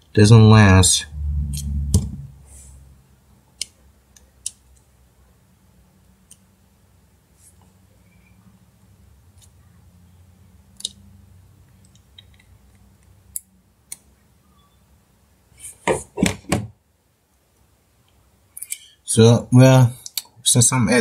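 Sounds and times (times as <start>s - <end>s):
low hum: 0.6s - 3.2s.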